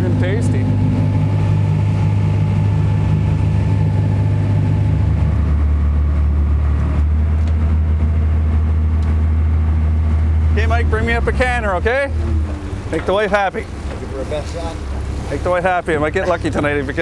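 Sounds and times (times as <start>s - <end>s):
boat engine running: 0.0s - 17.0s.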